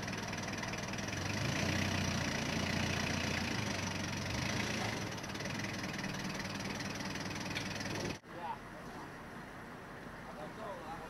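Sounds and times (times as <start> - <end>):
forklift engine running: 0.0 - 8.2.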